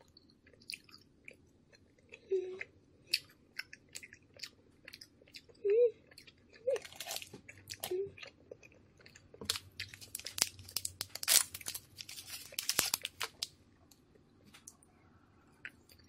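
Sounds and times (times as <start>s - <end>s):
plastic wrapper crackling and tearing: 9.5s - 13.5s.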